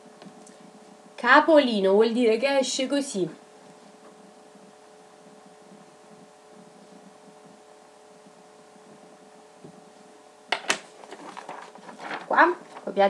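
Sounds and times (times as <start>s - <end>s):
paper sheet rustling: 10.6s - 13.0s
low hum: 11.2s - 12.2s.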